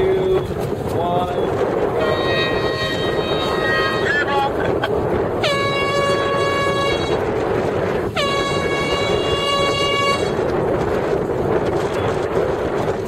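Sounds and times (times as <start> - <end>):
water noise: 0.0 - 13.0
wind: 0.0 - 13.0
air horn blasts: 2.0 - 4.3, 5.4 - 7.3, 8.0 - 10.4.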